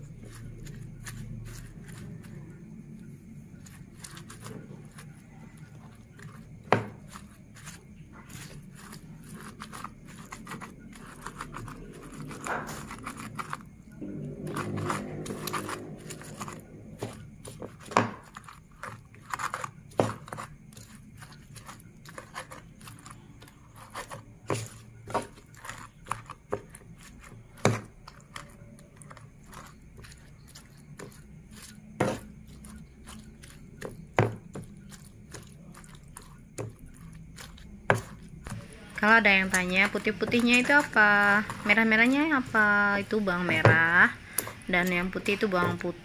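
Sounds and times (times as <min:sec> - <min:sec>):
pestle crushing wet food: 0:00.0 - 0:46.0
pestle knocking against mortar: 0:06.6 - 0:07.1, 0:14.6 - 0:20.5, 0:32.0 - 0:32.4, 0:33.8 - 0:34.8.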